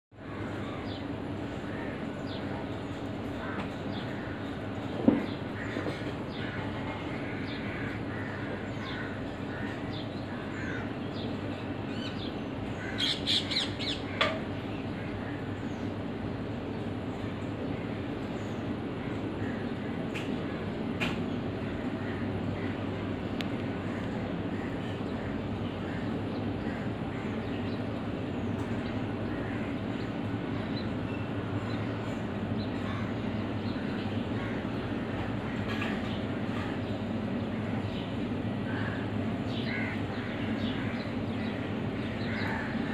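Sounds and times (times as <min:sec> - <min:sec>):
steady low hum: 0:00.1 - 0:42.9
crows cawing: 0:00.2 - 0:02.6, 0:03.3 - 0:11.0, 0:12.8 - 0:15.6, 0:32.7 - 0:36.7, 0:38.6 - 0:42.9.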